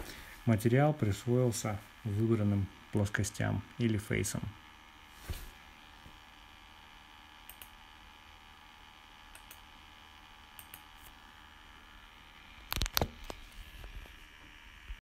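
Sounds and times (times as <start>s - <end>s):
low steady hiss and hum: 0.0s - 15.0s
computer mouse clicks: 7.4s - 7.8s, 9.3s - 9.6s, 10.6s - 11.1s.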